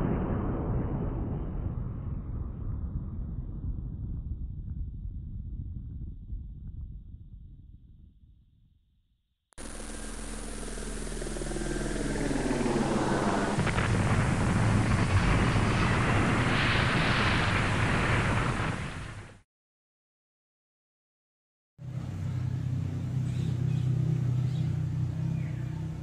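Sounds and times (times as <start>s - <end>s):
low rumble into dense rushing noise: 0.0s - 8.4s, 9.6s - 19.4s.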